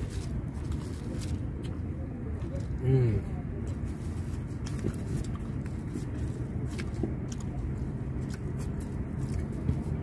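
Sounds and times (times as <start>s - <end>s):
chewing and eating: 0.0s - 10.0s
road traffic rumble: 0.0s - 10.0s.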